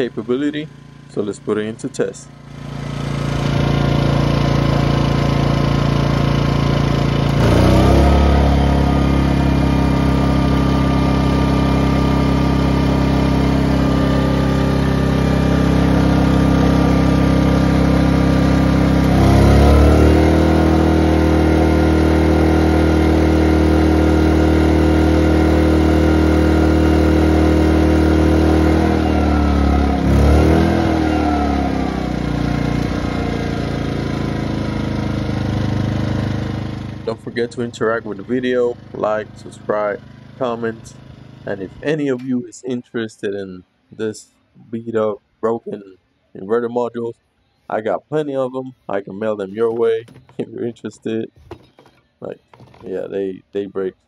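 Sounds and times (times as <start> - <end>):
generator engine running: 0.0 - 42.5, 48.9 - 53.1.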